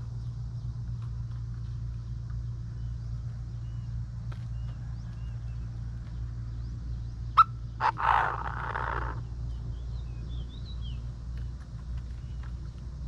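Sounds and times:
francolin calling: 6.5 - 11.1.

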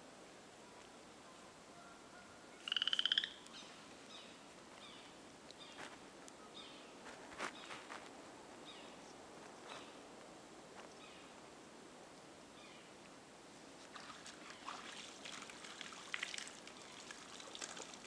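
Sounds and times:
frog calling trill: 1.8 - 3.5.

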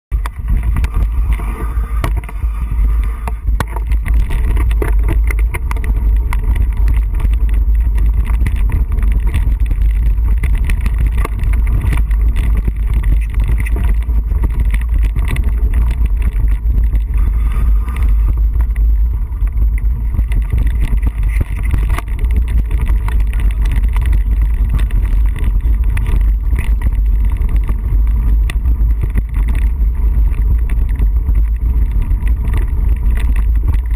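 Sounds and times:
bike knocks and rattles: 0.1 - 33.9
wind buffeting microphone: 0.1 - 33.9.

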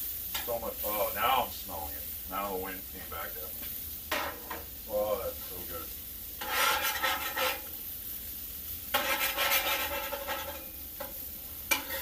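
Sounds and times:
food sizzling: 0.0 - 12.0
spatula scraping griddle: 3.6 - 4.8, 6.3 - 8.0, 8.6 - 12.0.

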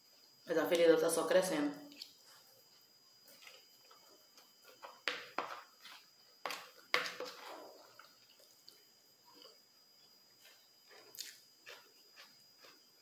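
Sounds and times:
spoon scooping from plastic bowl: 4.6 - 8.6
wet chewing: 10.4 - 13.0.

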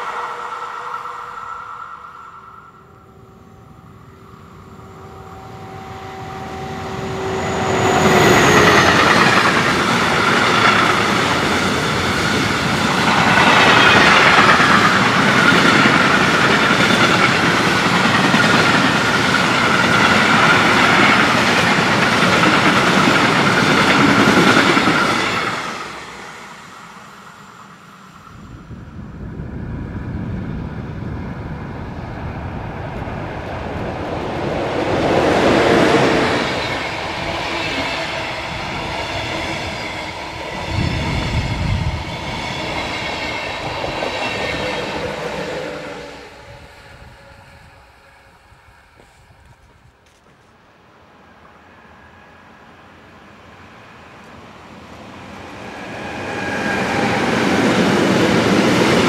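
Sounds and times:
electric locomotive whine: 0.0 - 59.0
high ringing of rails: 0.0 - 59.0
train wheels clattering on rails: 7.1 - 27.0.

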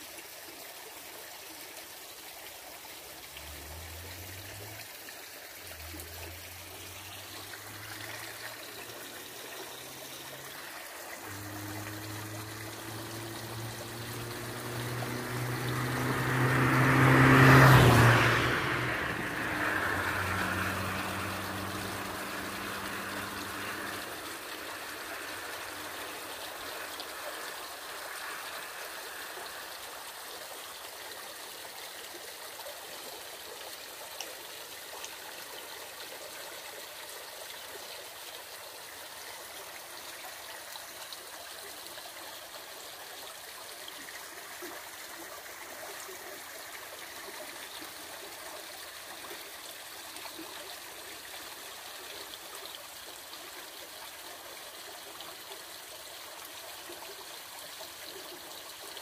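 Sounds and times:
river rushing over stones: 1.0 - 56.7
low engine hum: 3.0 - 30.3.

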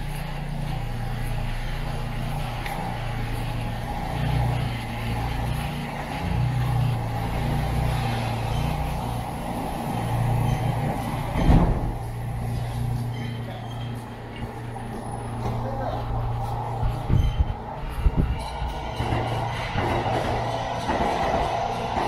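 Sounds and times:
vehicle engine rumble: 0.0 - 22.0
loud thump: 11.4 - 12.0.

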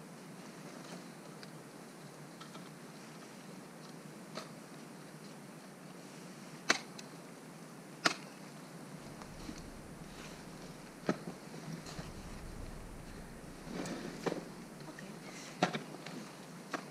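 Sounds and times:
low steady hiss: 8.8 - 16.2.

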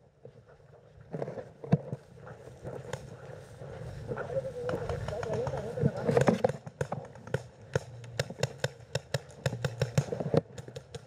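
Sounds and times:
paintball markers firing: 4.6 - 11.0.

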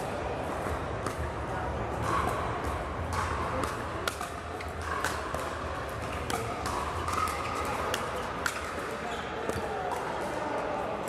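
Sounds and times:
paddles hitting plastic ball: 1.9 - 10.1.

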